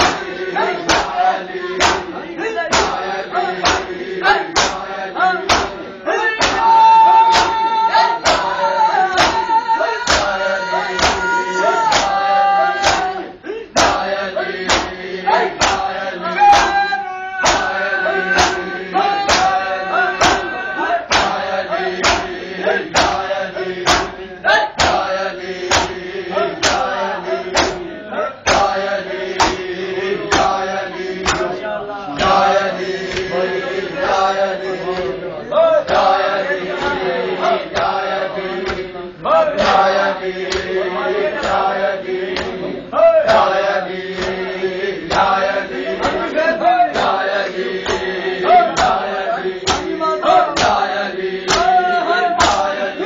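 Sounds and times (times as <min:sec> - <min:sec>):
men chanting in unison: 0:00.0 - 0:53.0
hands slapping chests: 0:00.9 - 0:01.2, 0:01.8 - 0:02.1, 0:02.7 - 0:03.0, 0:03.6 - 0:04.0, 0:04.6 - 0:04.9, 0:05.5 - 0:05.8, 0:06.4 - 0:06.7, 0:08.2 - 0:08.6, 0:09.2 - 0:10.3, 0:10.9 - 0:13.2, 0:14.6 - 0:15.0, 0:15.6 - 0:15.9, 0:17.4 - 0:17.8, 0:19.3 - 0:19.6, 0:21.1 - 0:21.4, 0:22.0 - 0:22.4, 0:23.0 - 0:23.2, 0:23.8 - 0:24.2, 0:24.8 - 0:26.0, 0:26.6 - 0:26.9, 0:27.5 - 0:27.8, 0:28.5 - 0:28.8, 0:29.4 - 0:29.7, 0:30.3 - 0:30.6, 0:31.2 - 0:31.6, 0:32.2 - 0:33.3, 0:40.4 - 0:40.7, 0:42.3 - 0:42.6, 0:44.1 - 0:44.4, 0:45.1 - 0:45.3, 0:47.8 - 0:48.1, 0:49.7 - 0:49.9, 0:50.6 - 0:50.8, 0:51.5 - 0:51.8, 0:52.4 - 0:52.7.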